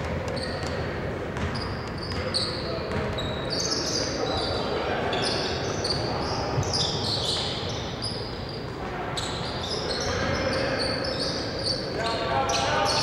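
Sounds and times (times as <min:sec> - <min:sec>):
basketball bouncing: 0:00.0 - 0:02.3
sneakers squeaking: 0:00.0 - 0:13.0.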